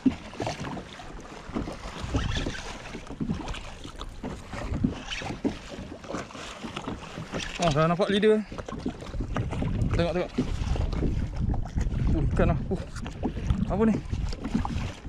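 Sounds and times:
wind buffeting microphone: 0:00.0 - 0:06.0, 0:06.7 - 0:15.0
water slapping against hull: 0:00.0 - 0:15.0.

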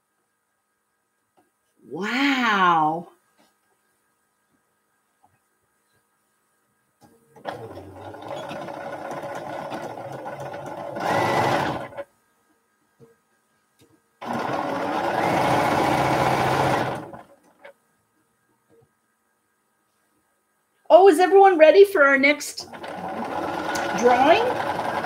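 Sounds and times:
sewing machine stitching: 0:07.4 - 0:12.0, 0:14.2 - 0:17.7, 0:22.6 - 0:25.0.

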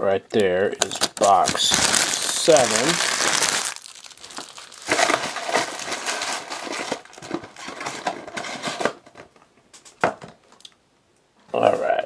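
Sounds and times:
cardboard packs rustling: 0:00.8 - 0:09.1.

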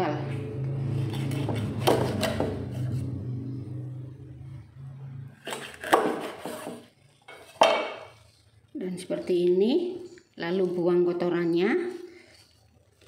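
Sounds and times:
low hum: 0:00.0 - 0:05.6
knife chopping on cutting board: 0:01.1 - 0:02.8, 0:05.4 - 0:06.8.

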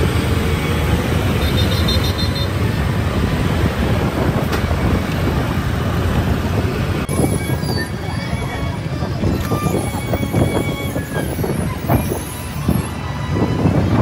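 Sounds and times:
bus engine rumble: 0:00.0 - 0:14.0
heavy city traffic: 0:00.0 - 0:14.0.

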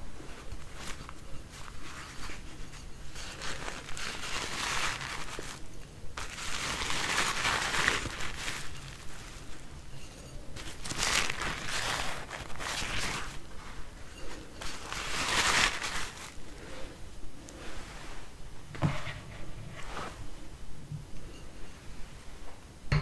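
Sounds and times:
paper napkins rustling: 0:00.0 - 0:17.0, 0:17.6 - 0:20.3.

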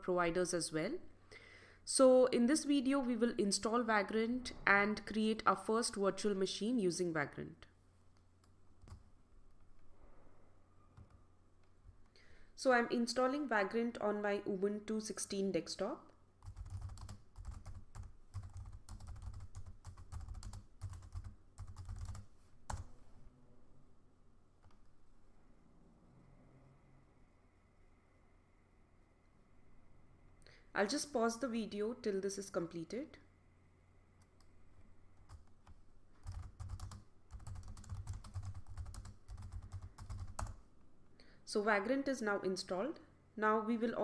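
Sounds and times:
keyboard typing: 0:08.8 - 0:09.1, 0:16.4 - 0:22.9, 0:35.2 - 0:40.6.

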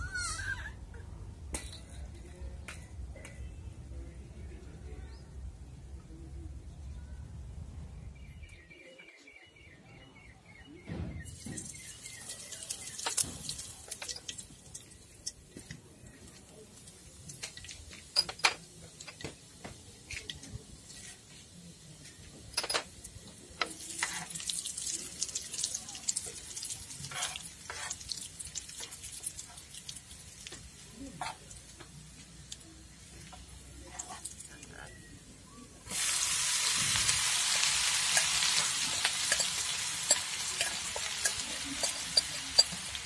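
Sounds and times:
dishes knocking and clinking: 0:17.4 - 0:19.8, 0:22.4 - 0:23.0, 0:38.9 - 0:42.9.

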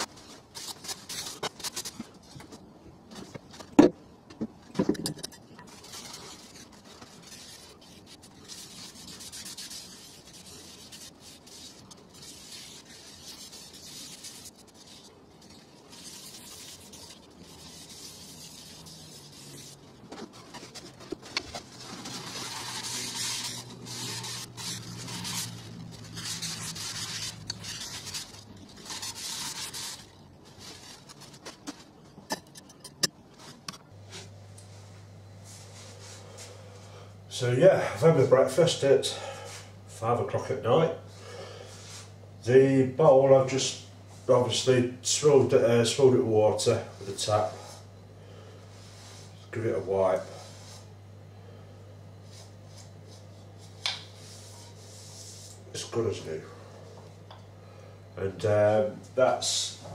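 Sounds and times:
paper towel rubbing wooden bowl: 0:05.7 - 0:32.0.

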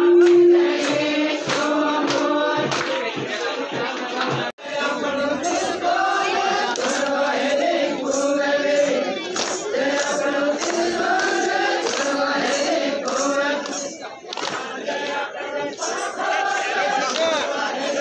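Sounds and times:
percussive beat: 0:00.0 - 0:04.5, 0:05.4 - 0:15.2
group of voices chanting: 0:00.0 - 0:18.0.

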